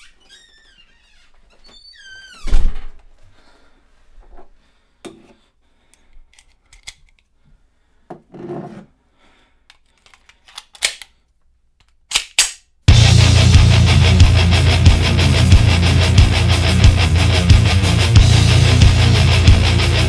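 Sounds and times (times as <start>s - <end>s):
heavy metal music: 12.9s - 20.0s.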